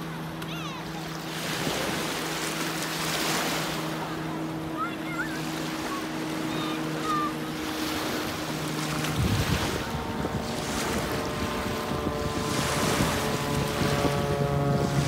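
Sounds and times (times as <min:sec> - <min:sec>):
small waves washing onto beach: 0:00.0 - 0:15.0
steady low hum: 0:00.0 - 0:15.0
wind on microphone: 0:05.5 - 0:15.0.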